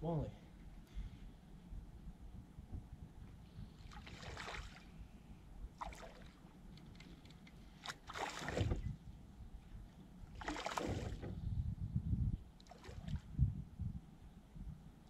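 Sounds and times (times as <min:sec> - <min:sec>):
wind on microphone: 0:01.7 - 0:04.6, 0:08.4 - 0:14.9.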